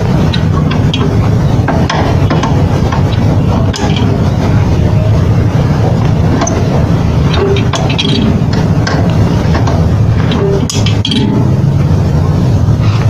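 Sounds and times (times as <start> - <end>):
steady low rumble: 0.0 - 13.0
metal clicks and knocks: 0.2 - 4.2, 6.0 - 11.6.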